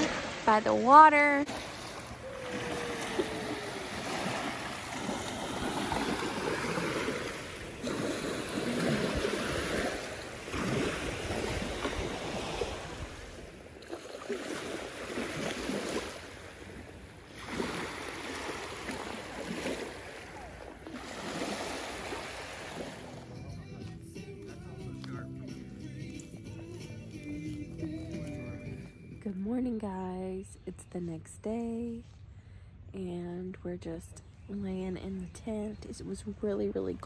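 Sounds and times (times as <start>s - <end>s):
waves washing onto sandy shore: 0.0s - 0.6s, 1.5s - 23.3s.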